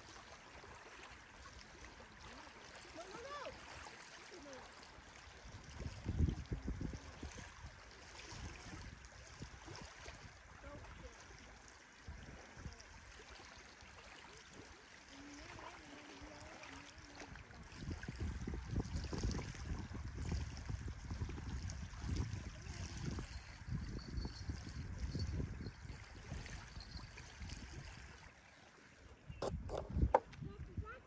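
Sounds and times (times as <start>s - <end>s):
water trickling and lapping: 0.0s - 31.0s
low rumble on microphone: 17.4s - 27.6s, 29.3s - 31.0s.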